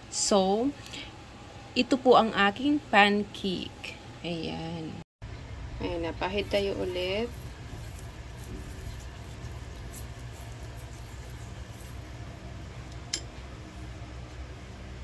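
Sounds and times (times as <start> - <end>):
low hum: 0.0 - 15.0
brush swishing in frying pan: 6.4 - 12.3.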